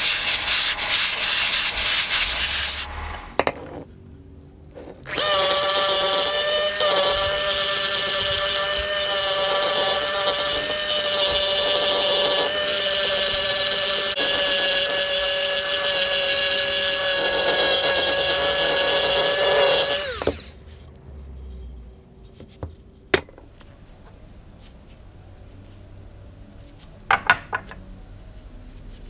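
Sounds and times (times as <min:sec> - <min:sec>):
rotary tool sanding wood: 0:00.0 - 0:03.2, 0:05.1 - 0:20.6.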